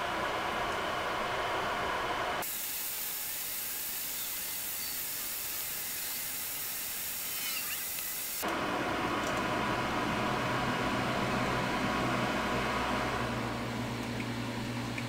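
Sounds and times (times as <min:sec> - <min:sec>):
fan whirring: 0:00.0 - 0:15.0
stepper motor whines: 0:02.4 - 0:08.6.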